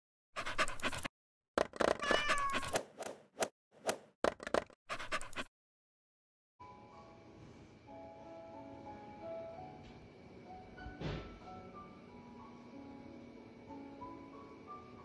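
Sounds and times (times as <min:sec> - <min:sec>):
cat meowing: 0:02.0 - 0:02.7.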